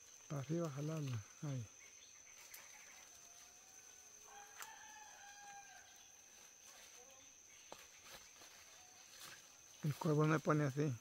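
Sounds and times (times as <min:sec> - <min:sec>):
rooster crowing: 0:03.2 - 0:06.2.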